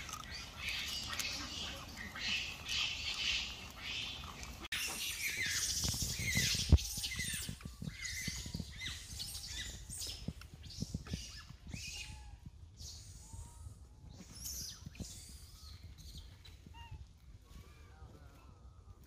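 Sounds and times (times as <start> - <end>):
high-pitched animal squeaks: 0.0 - 10.2, 10.9 - 17.0.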